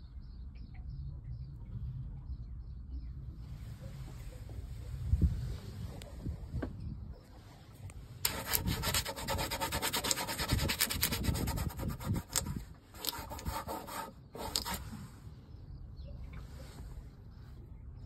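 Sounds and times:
rapid rubbing and scraping: 8.2s - 15.1s.

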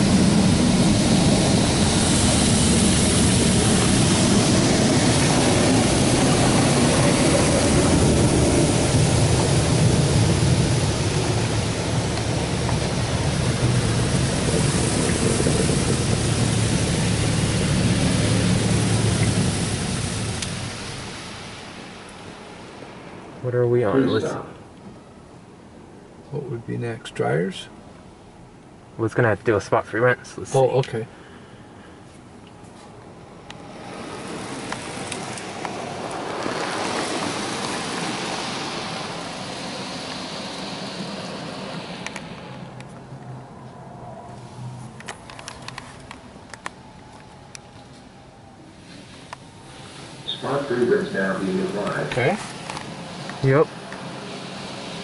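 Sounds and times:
high-pressure water spray on car: 0.0s - 22.9s, 33.6s - 42.8s, 48.8s - 55.0s.

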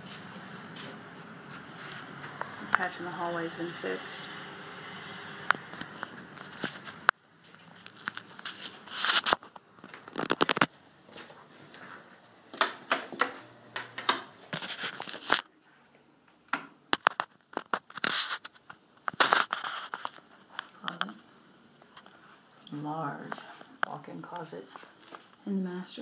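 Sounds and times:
rustling on phone microphone: 0.0s - 2.9s, 5.1s - 12.4s, 14.4s - 16.1s, 17.0s - 21.2s.

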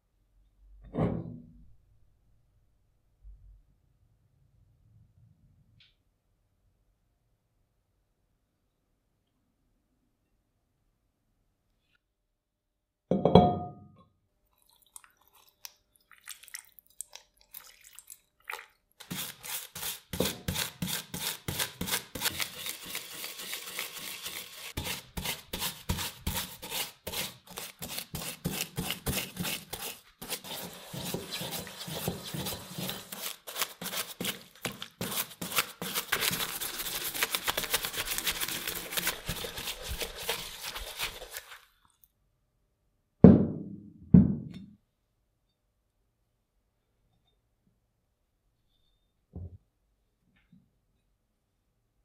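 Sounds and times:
metal clunk in glass bowl: 13.1s - 14.0s
stiff brush scrubbing: 18.5s - 41.7s.

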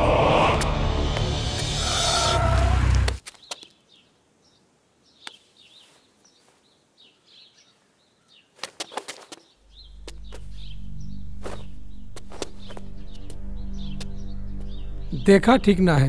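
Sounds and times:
film background music: 0.0s - 3.2s, 9.8s - 16.0s
low music drone: 0.0s - 3.2s, 9.7s - 16.0s
birds chirping: 0.0s - 16.0s.

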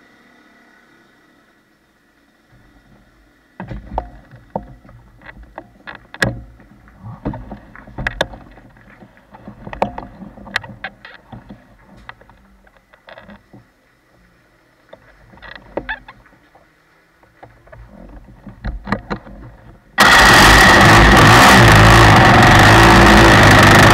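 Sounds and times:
knocks on go-kart chassis: 6.2s - 8.6s.

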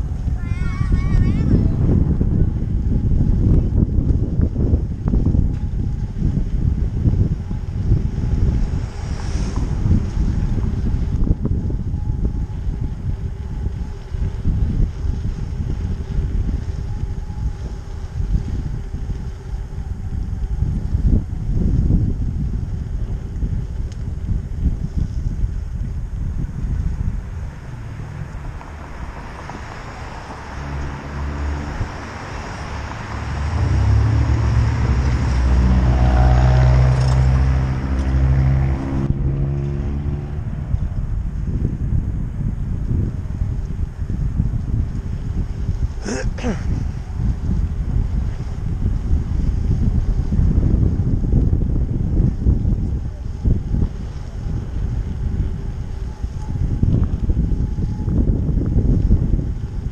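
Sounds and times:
car passing: 0.0s - 21.5s, 26.8s - 44.3s
wind buffeting microphone: 0.0s - 59.9s.

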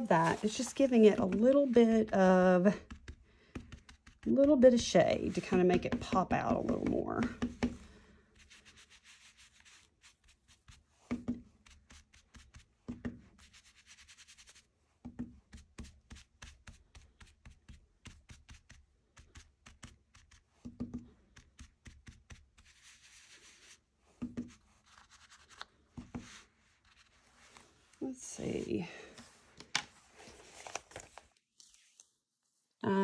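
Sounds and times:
soft rubbing: 0.0s - 3.0s, 8.3s - 12.7s, 21.6s - 32.8s
ink applicator dabbing on paper: 0.0s - 7.8s.

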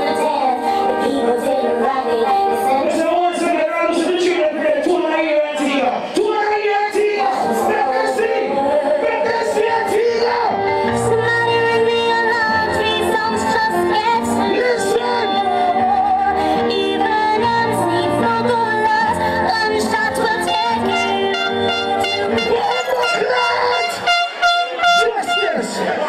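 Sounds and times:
song over sound system: 0.0s - 26.0s
deep bass line: 20.6s - 25.8s.

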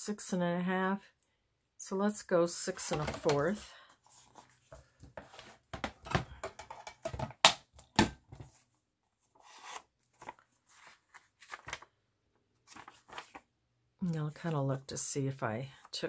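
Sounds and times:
paper page rustling: 9.3s - 11.9s, 12.6s - 13.5s.

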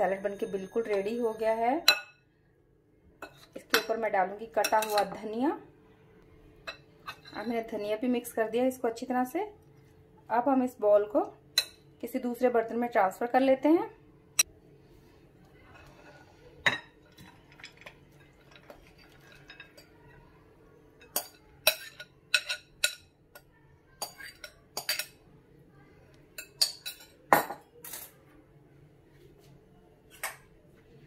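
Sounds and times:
clinks against glass bowls: 16.6s - 20.0s, 21.0s - 23.1s, 24.0s - 25.2s.

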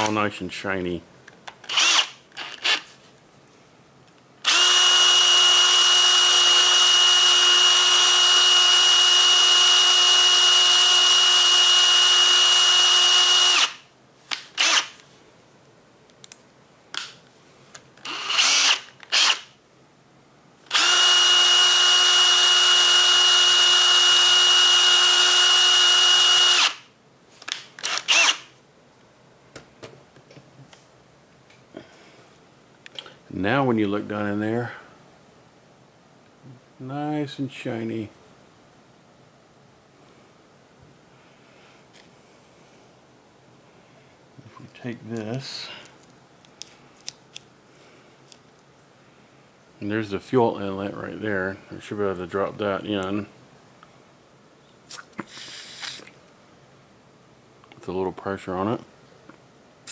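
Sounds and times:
small electric power tool running: 1.7s - 2.8s, 4.4s - 13.8s, 14.6s - 14.9s, 18.0s - 19.4s, 20.7s - 26.8s, 27.8s - 28.4s.

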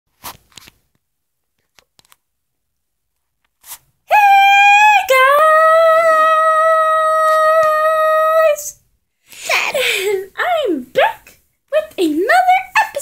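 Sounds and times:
person howling like a dog: 4.1s - 8.6s.

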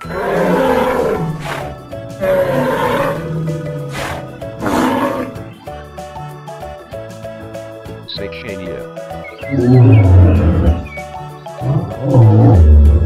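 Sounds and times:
dinosaur roars: 0.0s - 5.5s, 9.5s - 10.9s, 11.6s - 13.0s
background music: 0.0s - 13.0s.

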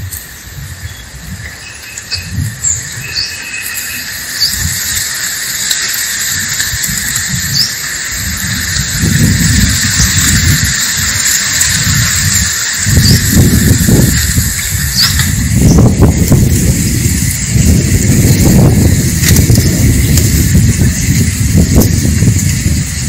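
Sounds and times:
low rumbling: 0.0s - 23.0s
steady high hiss: 0.0s - 23.0s
bird chirps: 0.8s - 5.2s.

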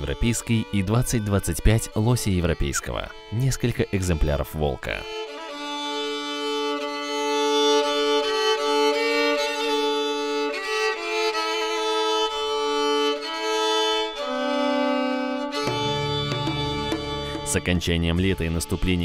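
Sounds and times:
melody over sustained chords: 14.2s - 17.8s.

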